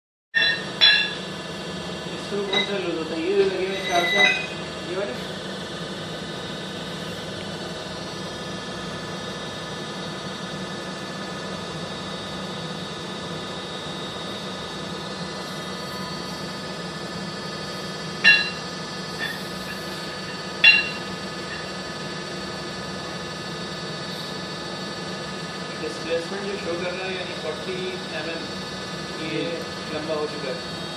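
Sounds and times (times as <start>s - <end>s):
sharp ringing clicks: 0.4s - 1.2s, 18.2s - 19.4s, 20.6s - 21.7s
testing machine humming: 0.4s - 30.9s.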